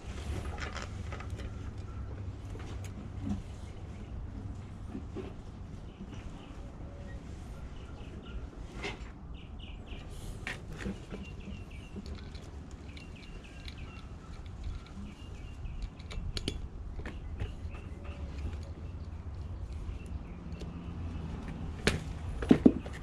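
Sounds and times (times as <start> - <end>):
small birds chirping: 9.3 - 23.0
sharp clicks and taps: 11.2 - 23.0.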